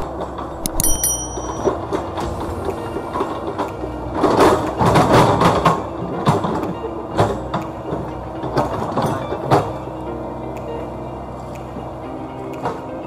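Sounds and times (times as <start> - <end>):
excavator diesel engine running: 0.0 - 13.0
excavator bucket clanks and knocks: 3.2 - 9.9.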